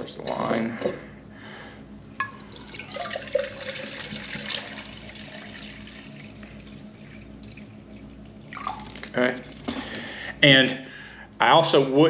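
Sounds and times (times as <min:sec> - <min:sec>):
water pouring into cup: 0:02.2 - 0:09.9.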